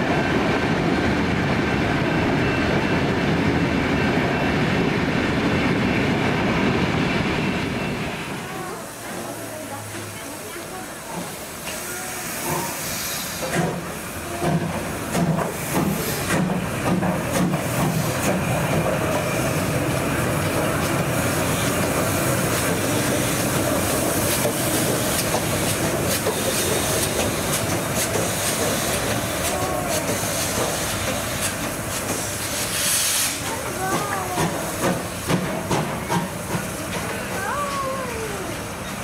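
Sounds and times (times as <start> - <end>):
hissing steam: 8.0 - 39.0
steam locomotive exhaust chuffs: 8.8 - 37.4
wheels clicking on rails: 13.4 - 32.8, 33.4 - 39.0.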